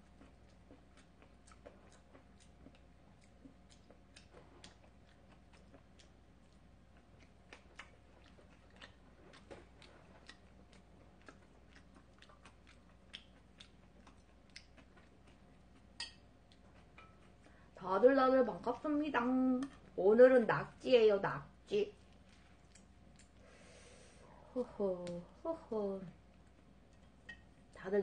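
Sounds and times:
close-up chewing: 0.0s - 20.8s, 21.9s - 25.2s.

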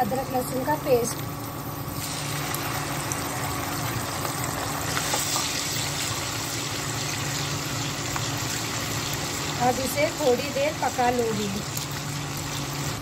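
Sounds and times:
paste sizzling in hot oil: 1.8s - 13.0s.

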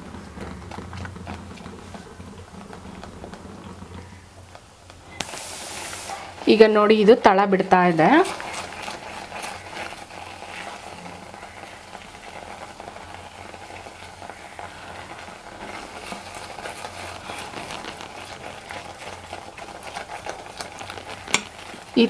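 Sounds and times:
soft sizzle: 0.0s - 22.0s
spatula scraping a pan: 8.0s - 21.9s.

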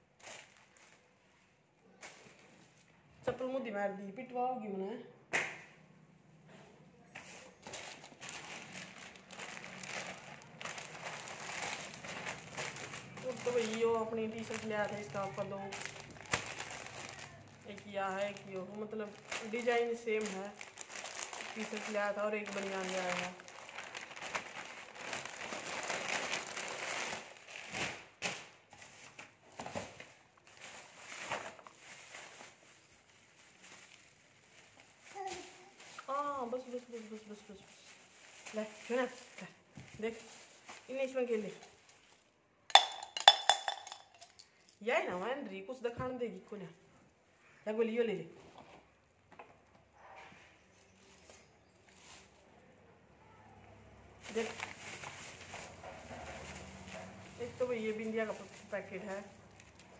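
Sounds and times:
plastic packaging crinkling: 7.2s - 44.8s, 51.1s - 52.4s, 54.2s - 59.9s.

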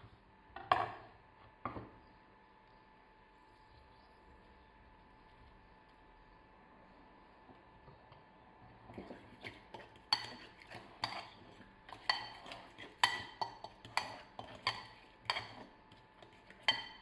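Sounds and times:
fork scraping a bowl: 8.9s - 17.0s
fork clinking against a bowl: 9.7s - 17.0s.

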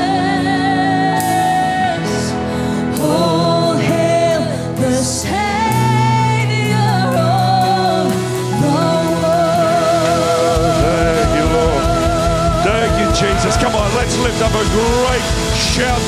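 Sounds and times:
worship band playing with singing: 0.0s - 16.0s
cymbal crashes: 10.0s - 16.0s.

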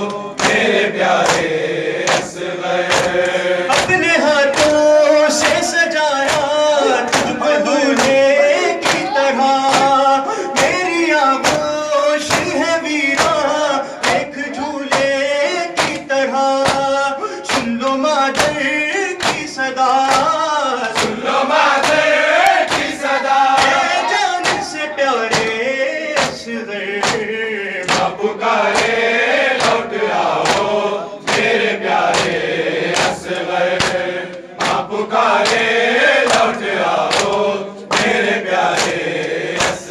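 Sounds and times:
man chanting into a microphone: 0.0s - 1.0s, 2.2s - 22.1s, 22.7s - 32.3s
chest-beating slaps: 0.0s - 10.0s, 11.4s - 11.7s, 19.2s - 19.5s, 20.1s - 25.6s, 26.2s - 29.0s, 29.6s - 39.9s
group of men singing refrain: 0.0s - 39.9s.

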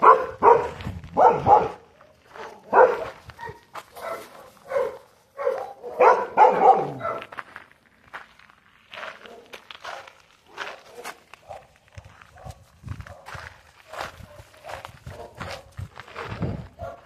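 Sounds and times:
dogs barking: 0.0s - 7.4s, 9.2s - 17.0s
faint scuffs: 7.1s - 17.0s.

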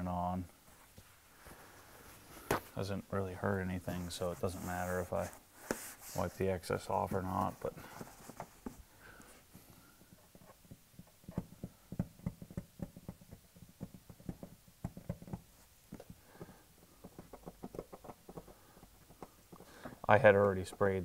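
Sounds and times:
fingers scratching plastic letters: 10.0s - 20.1s.

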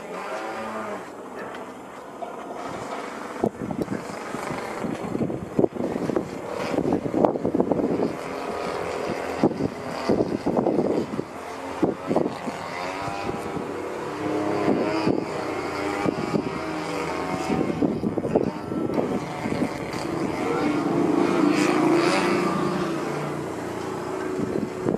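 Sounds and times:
model airplane engine: 0.0s - 24.9s.

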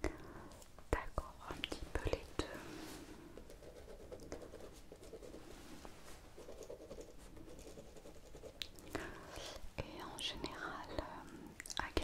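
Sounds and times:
pen scratching on paper: 6.4s - 8.6s.

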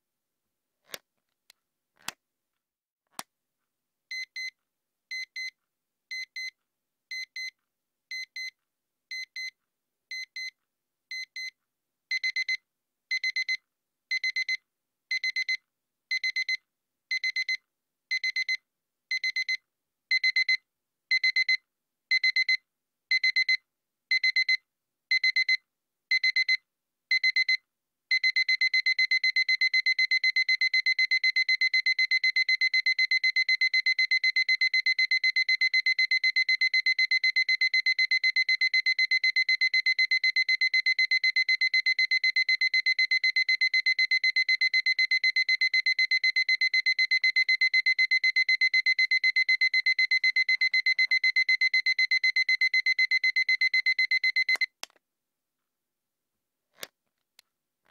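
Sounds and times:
alarm clock beeping: 28.2s - 54.7s.

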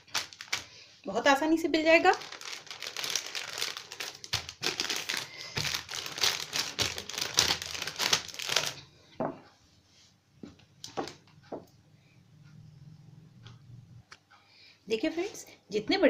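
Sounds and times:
plastic bag crinkling under rolling pin: 0.0s - 0.8s, 1.6s - 8.8s.

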